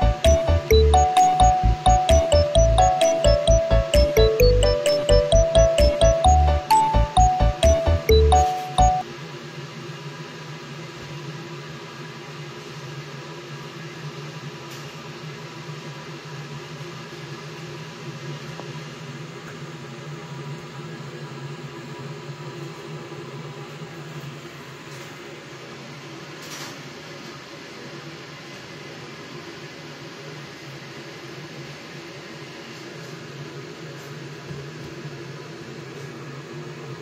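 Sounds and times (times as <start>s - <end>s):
music: 0.0s - 9.0s.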